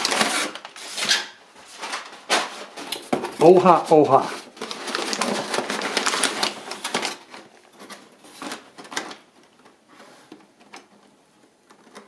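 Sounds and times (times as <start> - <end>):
packing paper rustling: 0.0 - 12.0.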